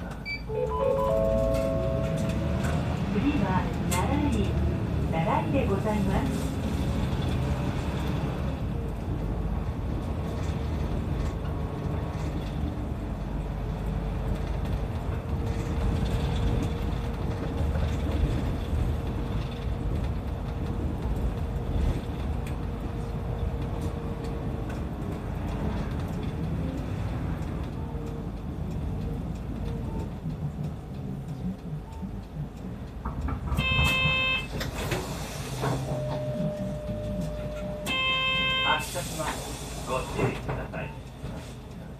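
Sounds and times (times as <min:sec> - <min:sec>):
bus engine and road rumble: 0:00.0 - 0:41.9.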